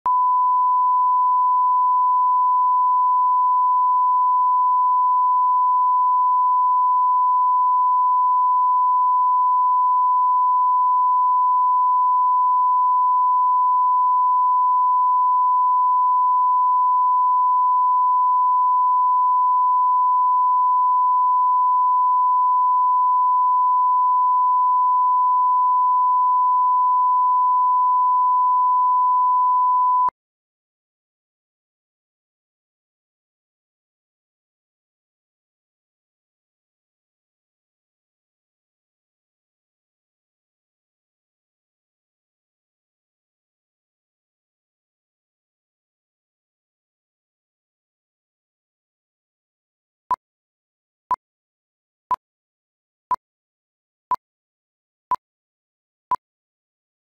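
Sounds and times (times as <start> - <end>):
steady test tone beep: 0.1 - 30.2.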